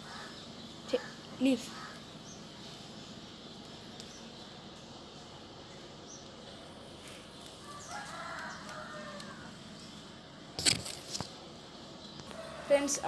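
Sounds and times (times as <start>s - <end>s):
rooster crowing: 7.6s - 9.6s, 12.3s - 13.0s.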